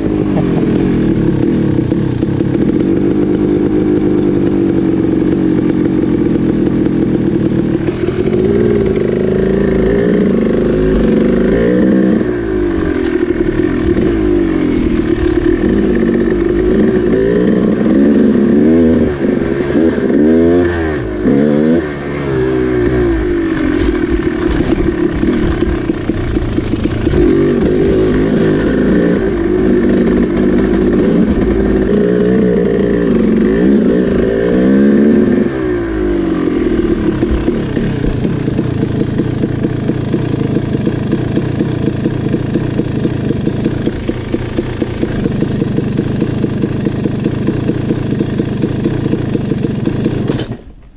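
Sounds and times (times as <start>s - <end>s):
dirt bike engine revving: 0.0s - 50.8s.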